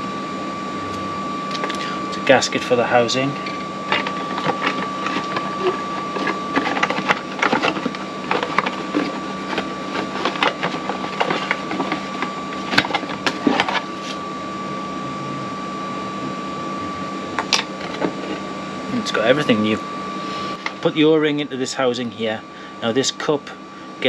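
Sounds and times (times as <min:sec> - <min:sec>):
steady hum with high whine: 0:00.0 - 0:24.0
cardboard and paper rustling: 0:03.3 - 0:14.2, 0:17.4 - 0:18.4.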